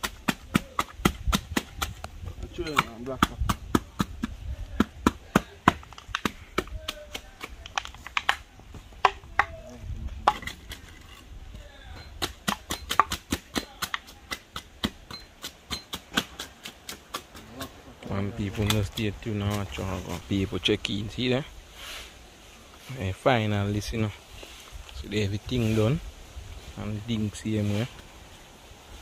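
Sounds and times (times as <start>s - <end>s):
wooden pole knocking on steel bars: 0.0s - 6.8s.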